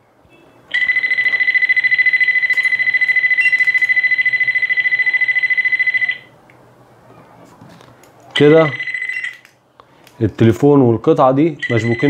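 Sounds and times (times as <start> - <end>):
high-pitched electronic beep: 11.6 - 12.0.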